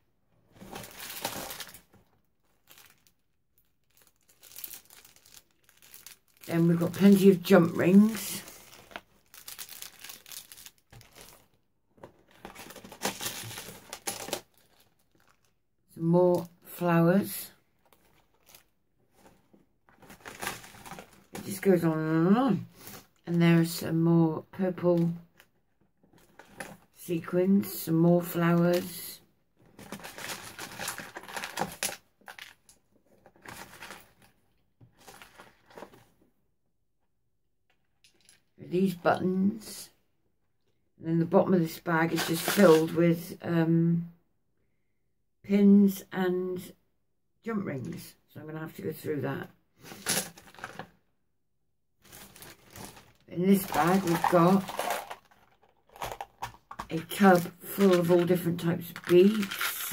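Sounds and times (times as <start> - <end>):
plastic bags crinkling: 0.5 - 15.6, 17.9 - 21.6, 29.8 - 36.0, 42.0 - 43.0, 49.9 - 50.9, 52.0 - 59.9.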